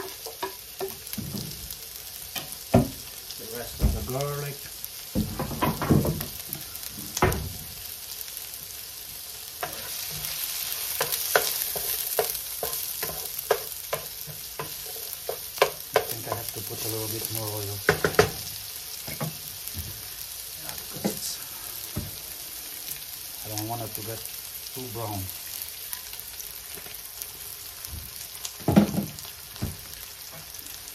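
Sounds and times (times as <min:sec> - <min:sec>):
onion and garlic sizzling in a pan: 0:00.0 - 0:30.9
wooden spoon scraping a pan: 0:09.6 - 0:17.6.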